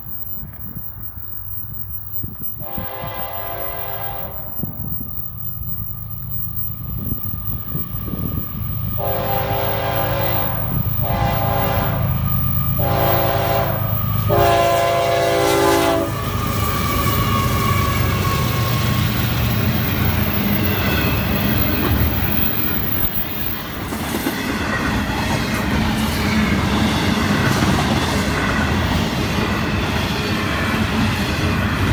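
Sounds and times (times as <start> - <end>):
wheels clacking on rail joints: 0.0 - 28.4
train passing with rumble: 0.0 - 31.9
locomotive horn blasts: 2.6 - 4.6, 9.0 - 16.4.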